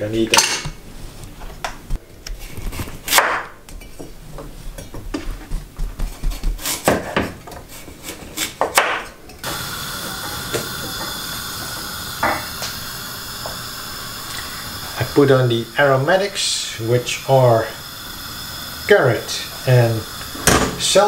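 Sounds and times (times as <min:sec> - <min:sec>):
pot hissing on gas flame: 0:06.6 - 0:21.0.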